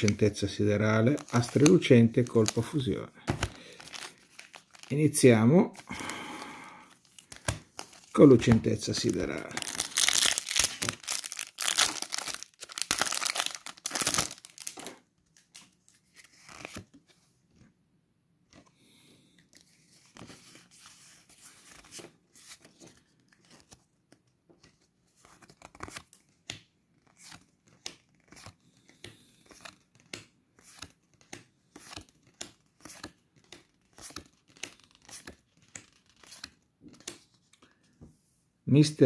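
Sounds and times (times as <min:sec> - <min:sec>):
foil wrapper crinkling: 0:01.0 - 0:02.9, 0:03.5 - 0:05.0, 0:09.0 - 0:15.0.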